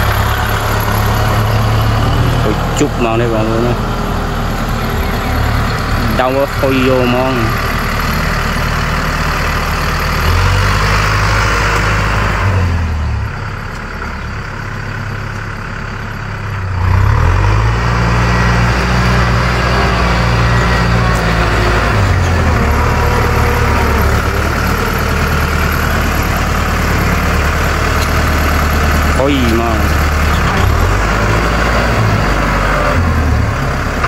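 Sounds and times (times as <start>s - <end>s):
tractor diesel engine under load: 0.0s - 34.0s.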